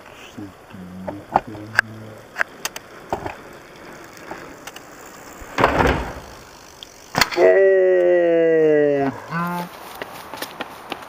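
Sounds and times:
sharp clicks: 0.6s - 7.4s
bike tyres rushing up a ramp: 2.5s - 7.9s.

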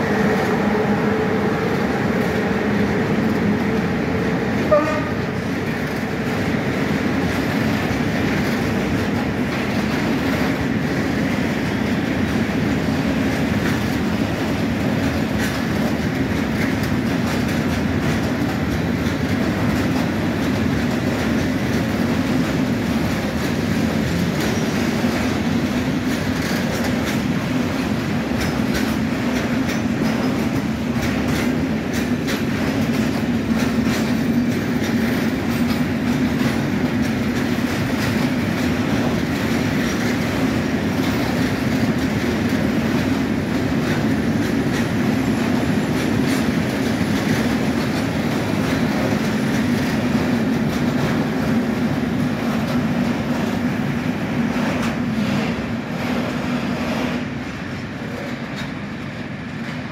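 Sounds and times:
freight train rumbling past: 0.0s - 59.9s
wheels clacking over rail joints: 0.0s - 59.9s.

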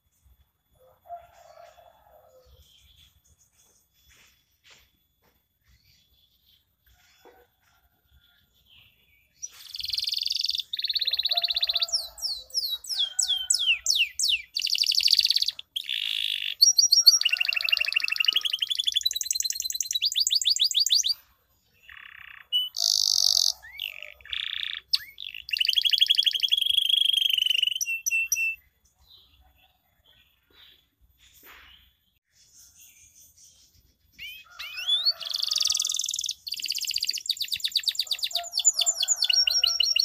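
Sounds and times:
canary singing: 9.4s - 21.2s, 21.8s - 28.6s, 34.1s - 40.0s.

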